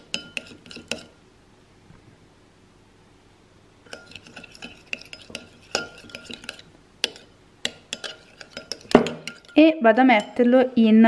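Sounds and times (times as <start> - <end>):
spoon stirring in glass bowl: 0.0 - 1.2, 3.9 - 10.5.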